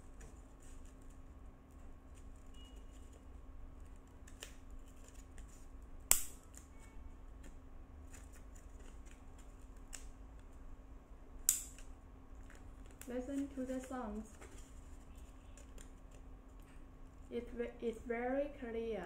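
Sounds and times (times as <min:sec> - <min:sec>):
nail clipper snapping through paper: 0:06.1 - 0:06.4.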